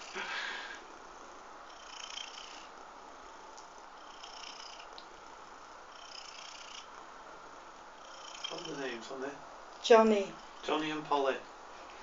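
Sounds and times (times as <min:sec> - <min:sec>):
cat purring: 0:00.0 - 0:09.1.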